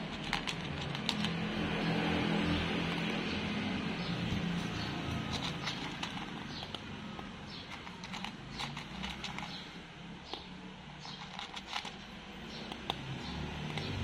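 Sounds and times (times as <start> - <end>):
cat crunching dry kibble: 0.0 - 2.1, 4.0 - 9.7, 11.0 - 14.0.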